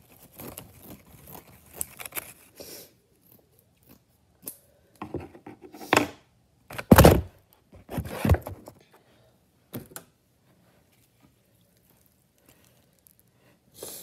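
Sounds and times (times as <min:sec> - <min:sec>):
hands handling things: 0:05.0 - 0:08.9.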